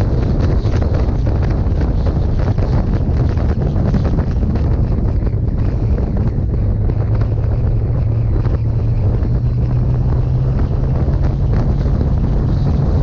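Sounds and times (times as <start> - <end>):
motorcycle engine drone: 0.0 - 13.0
wind buffeting microphone: 0.0 - 13.0.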